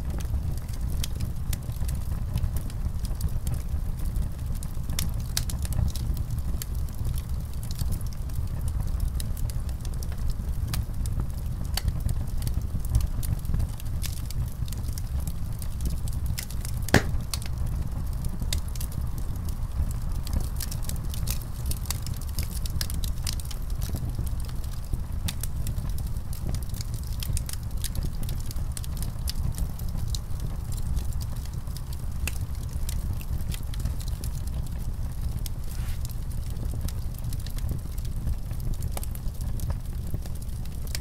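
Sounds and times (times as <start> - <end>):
fire crackling and popping: 0.0 - 41.0.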